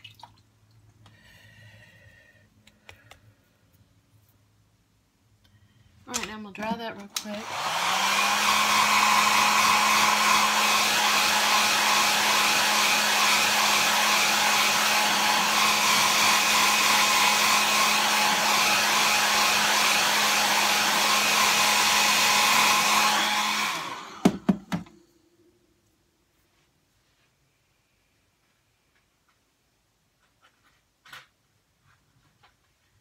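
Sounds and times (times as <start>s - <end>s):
hair dryer blowing: 7.1s - 25.0s.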